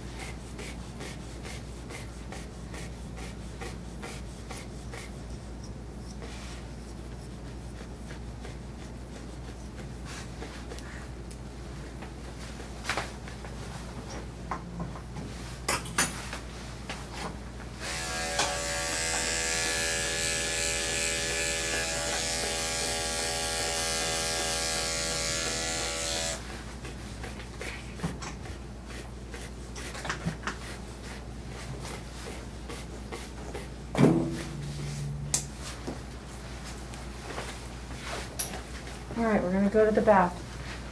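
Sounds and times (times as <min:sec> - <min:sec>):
electric clippers running: 0:17.8 - 0:26.4.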